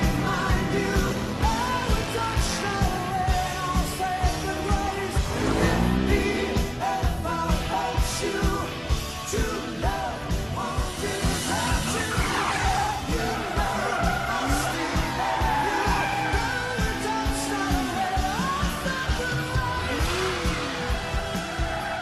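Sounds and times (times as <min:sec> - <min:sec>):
song with sung vocal: 0:00.0 - 0:22.0
steady drum beat: 0:00.0 - 0:22.0.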